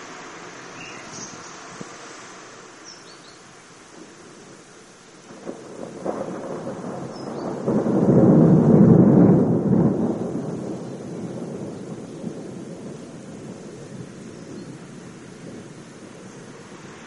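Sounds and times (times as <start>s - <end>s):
rolling thunder: 5.2s - 17.0s.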